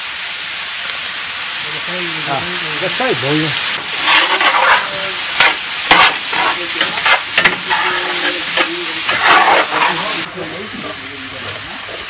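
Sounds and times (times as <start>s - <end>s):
meat sizzling in a pot: 0.0s - 12.0s
scraping stirring strokes: 3.5s - 10.3s.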